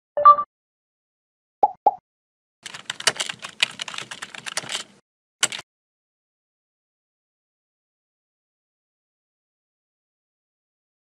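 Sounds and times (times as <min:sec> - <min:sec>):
computer keyboard typing: 0:02.6 - 0:05.6.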